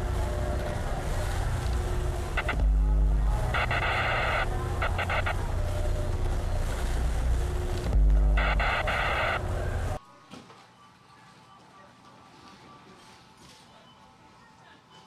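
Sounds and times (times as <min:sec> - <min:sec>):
buzzing synth chord: 0:00.0 - 0:10.0
deep bass drone: 0:00.0 - 0:10.0
stuttering electronic clicks: 0:02.3 - 0:06.3, 0:07.5 - 0:10.0.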